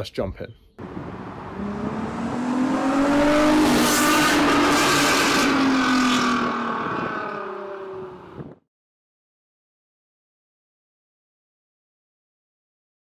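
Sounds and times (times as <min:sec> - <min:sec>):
car engine revving: 0:00.8 - 0:08.4.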